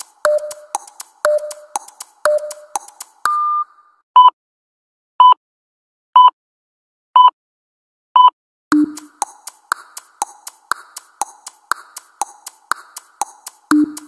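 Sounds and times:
light percussive music: 0.0s - 3.4s, 8.7s - 14.0s
lower longer timer tone: 0.0s - 3.7s, 8.7s - 14.0s
workout timer beeps: 0.0s - 4.4s, 8.2s - 9.4s, 13.2s - 14.0s.

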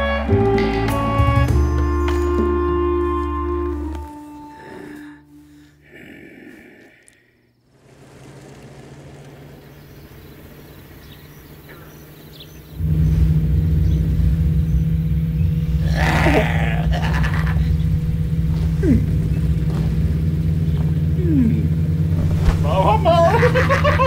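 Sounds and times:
vehicle engine droning: 0.0s - 24.0s.

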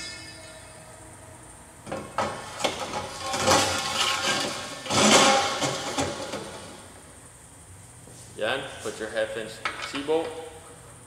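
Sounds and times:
metal scraping on metal: 2.1s - 6.8s.

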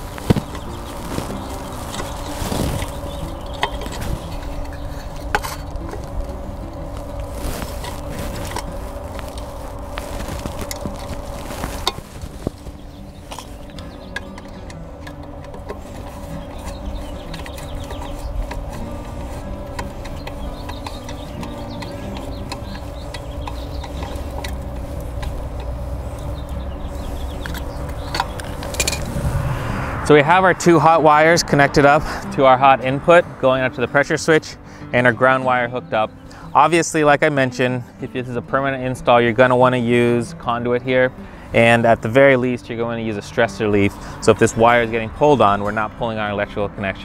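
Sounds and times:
steady low hum: 0.0s - 33.7s
steady low rumble: 0.0s - 34.7s.

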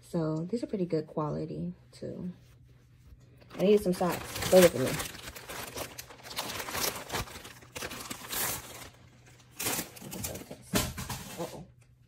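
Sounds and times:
packaging crinkling: 3.4s - 10.6s.

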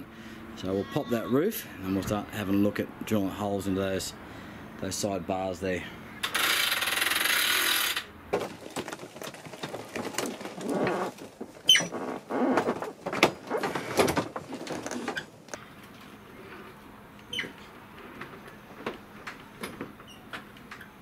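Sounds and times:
roof knocks clicks and creaks: 8.3s - 15.6s, 17.3s - 21.0s
short squeak: 10.8s - 12.6s, 17.2s - 17.6s.

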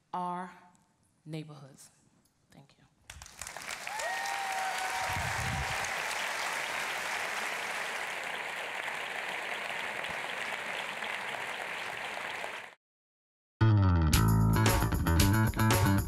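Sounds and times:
audience applauding: 3.1s - 12.8s.

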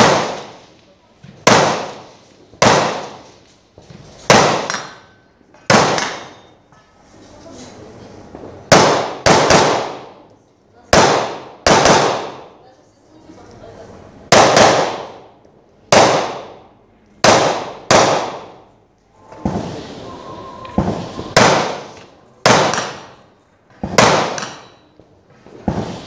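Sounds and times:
carbine shots echoing: 0.0s - 0.6s, 1.4s - 3.2s, 8.7s - 10.1s, 10.9s - 12.5s, 14.3s - 15.2s, 15.9s - 16.6s, 17.2s - 18.6s, 20.8s - 23.2s, 23.8s - 24.8s.

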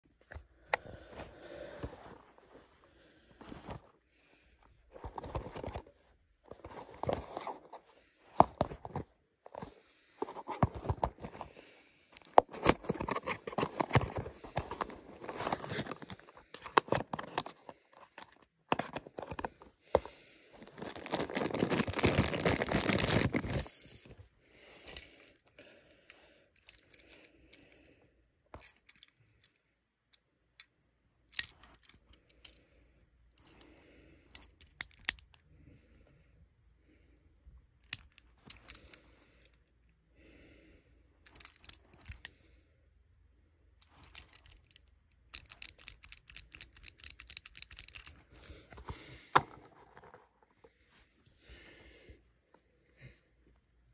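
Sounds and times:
plastic bag crinkling: 20.6s - 24.1s
toy car clicks and taps: 44.0s - 48.2s.

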